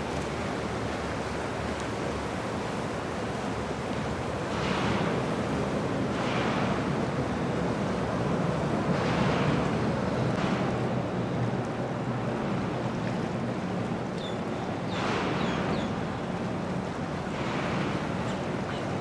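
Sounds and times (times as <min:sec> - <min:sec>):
churning wake water: 0:00.0 - 0:19.0
boat engines running: 0:00.1 - 0:19.0.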